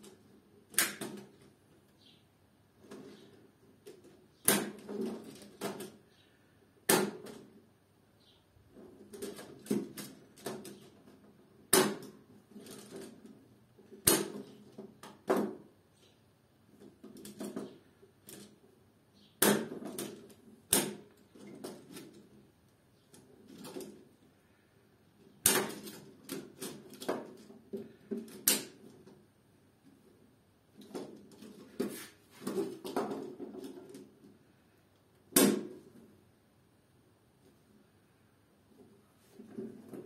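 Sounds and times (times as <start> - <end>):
plastic housings clacking and rattling: 2.8 - 6.0, 8.7 - 11.5, 12.1 - 15.6, 16.7 - 18.6, 25.2 - 29.3, 30.7 - 34.4.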